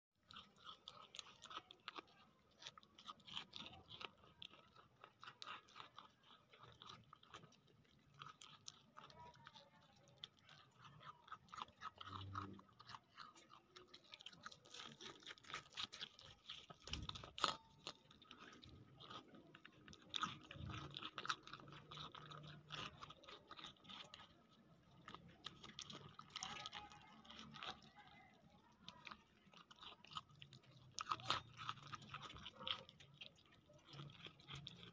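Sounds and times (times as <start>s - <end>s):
goat chewing rind crunches: 0.2s - 34.9s.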